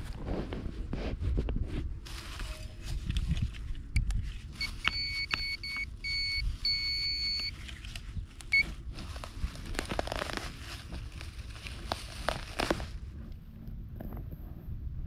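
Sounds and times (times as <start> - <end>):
metal detector beeping: 4.6 - 7.6, 8.5 - 8.8.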